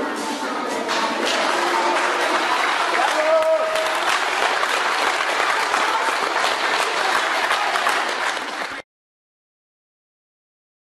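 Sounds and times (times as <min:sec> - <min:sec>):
audience applauding: 0:01.2 - 0:08.8.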